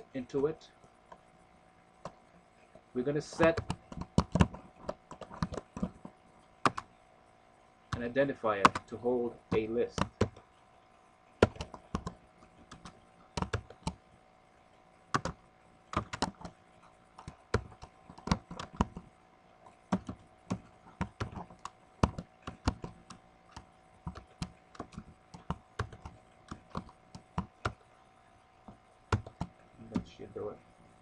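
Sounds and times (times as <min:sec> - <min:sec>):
keyboard typing clicks: 0:03.4 - 0:06.9, 0:07.9 - 0:08.9, 0:09.5 - 0:10.4, 0:11.4 - 0:14.0, 0:15.1 - 0:16.6, 0:17.2 - 0:19.1, 0:19.9 - 0:27.8, 0:29.1 - 0:30.2.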